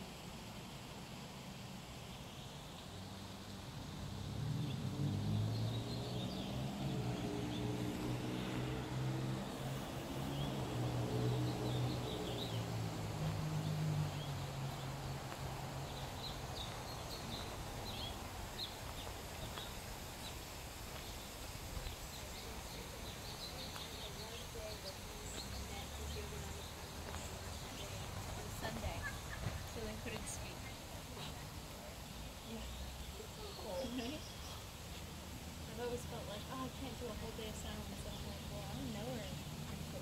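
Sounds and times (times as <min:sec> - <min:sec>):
outdoor background noise: 0:00.0 - 0:40.0
small birds chirping: 0:01.9 - 0:40.0.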